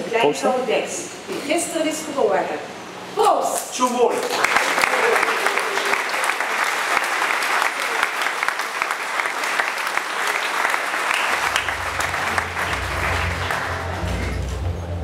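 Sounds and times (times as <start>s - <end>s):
audience applauding: 4.2s - 14.7s
deep bass music: 11.4s - 15.0s.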